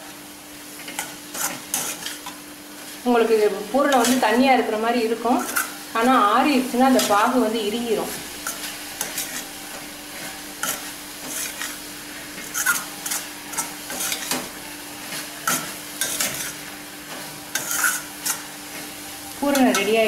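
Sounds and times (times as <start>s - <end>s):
steady sizzle: 0.0s - 20.0s
metal spatula scraping a pan: 0.9s - 2.4s, 5.2s - 5.8s, 6.7s - 20.0s.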